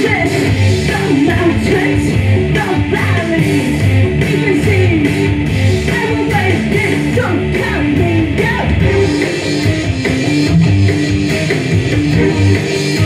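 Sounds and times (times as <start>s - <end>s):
person singing: 0.0s - 9.3s
electric guitar: 0.0s - 13.0s.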